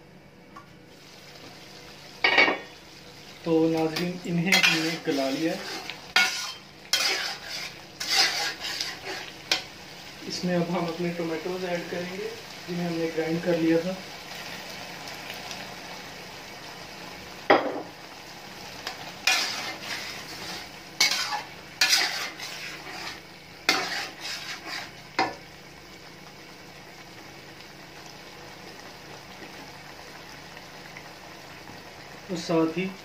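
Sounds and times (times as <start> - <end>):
food sizzling: 0.0 - 33.0
metal spatula scraping a pot: 4.5 - 9.6, 19.2 - 25.0.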